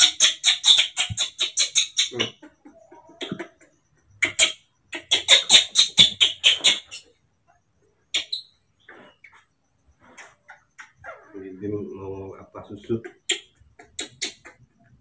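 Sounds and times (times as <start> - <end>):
baby monkey squeaking: 0.0 - 7.1, 8.1 - 9.4, 10.0 - 11.4, 13.0 - 14.7.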